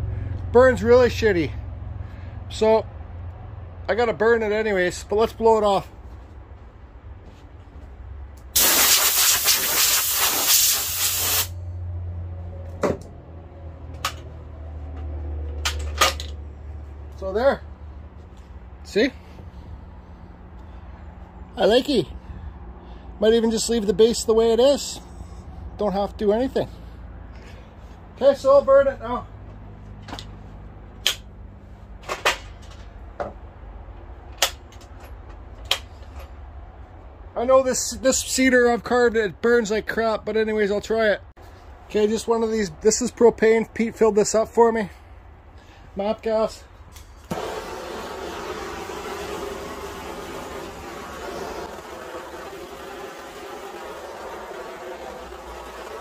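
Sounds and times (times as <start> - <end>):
compressed air hissing: 8.6 - 11.6
sharp clicks and knocks: 34.3 - 36.3.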